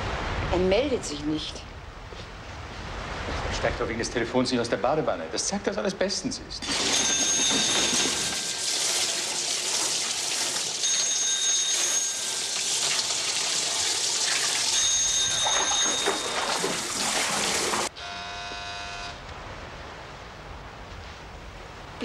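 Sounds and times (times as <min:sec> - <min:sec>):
telephone ringing: 0:06.6 - 0:09.3, 0:10.8 - 0:13.0, 0:14.7 - 0:19.2
water gushing and splashing: 0:06.6 - 0:17.9.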